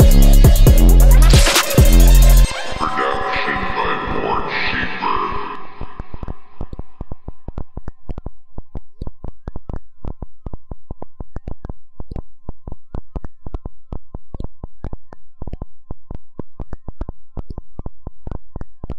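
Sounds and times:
steady synth tone: 1.2s - 7.4s
wobbling synth tone: 1.8s - 7.2s.

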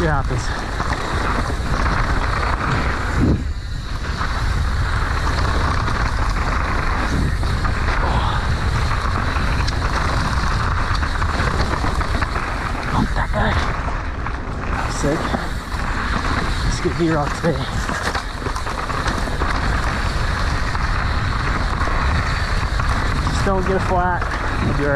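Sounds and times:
bike tyres rolling on dirt: 0.0s - 24.9s
wind buffeting the microphone: 0.0s - 24.9s.

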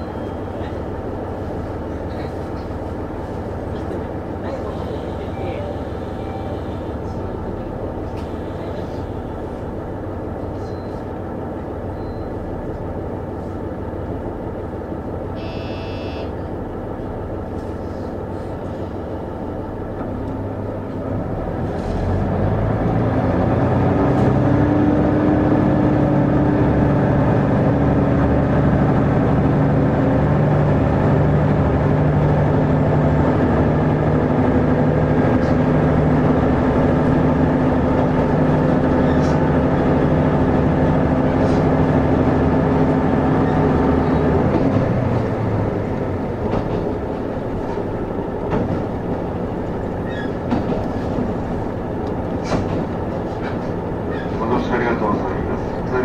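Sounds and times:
train diesel engine: 0.0s - 56.0s
high beep: 15.4s - 16.3s.

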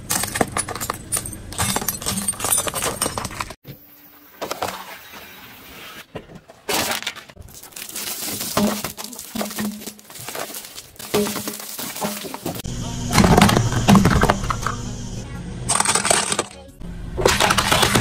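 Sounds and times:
glass bulbs shattering under tyre: 6.7s - 12.6s
hard candy crunching under tyre: 6.7s - 12.6s.

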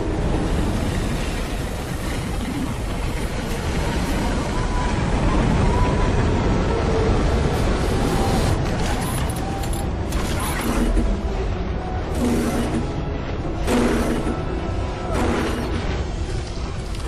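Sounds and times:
rushing churning water: 0.0s - 9.4s
dramatic music score: 0.0s - 17.0s.

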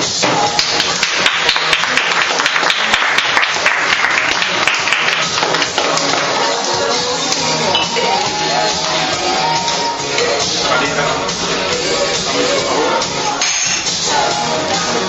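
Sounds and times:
background music: 0.0s - 15.0s
audience applause: 0.7s - 6.5s.

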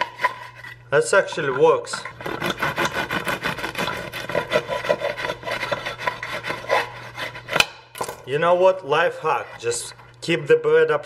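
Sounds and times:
knife sawing through crusty bread: 0.0s - 0.8s, 2.1s - 7.7s, 9.0s - 10.0s.

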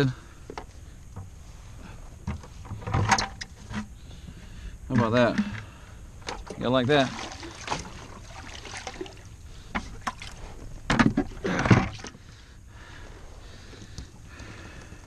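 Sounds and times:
water splashing and sloshing: 2.2s - 4.0s, 4.9s - 12.5s.

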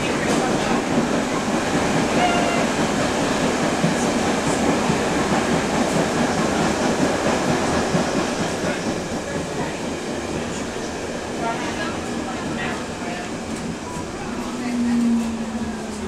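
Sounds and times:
train wheels and motor rumble: 0.0s - 16.0s.

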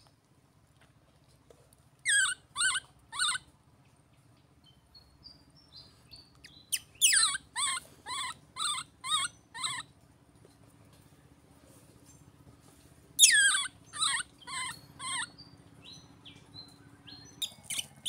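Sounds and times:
baby monkey crying: 2.1s - 3.5s, 6.7s - 9.9s, 13.2s - 15.4s.

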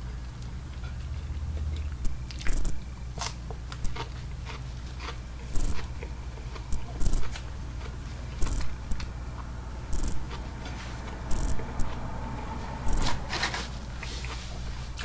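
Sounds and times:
steady low hum: 0.0s - 15.0s
person chewing food: 0.4s - 12.1s, 12.9s - 15.0s.

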